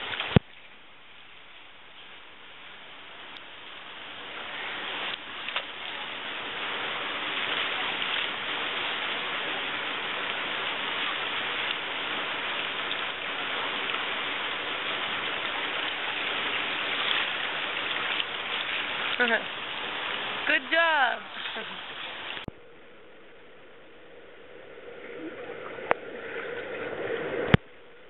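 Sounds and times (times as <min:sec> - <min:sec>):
river water rushing: 0:01.2 - 0:22.5.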